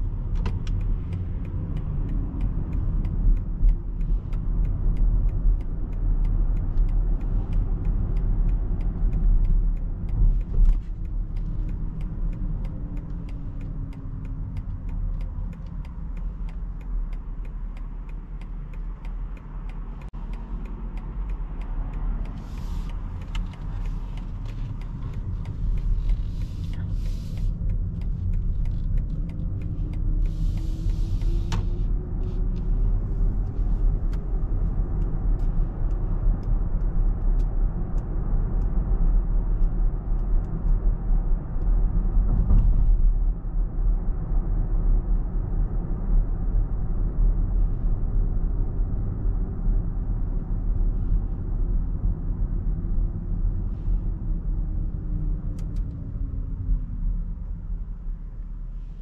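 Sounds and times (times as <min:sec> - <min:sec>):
road and tyre rumble: 0:00.0 - 0:59.0
short ticks and hissy bursts: 0:22.0 - 0:31.8.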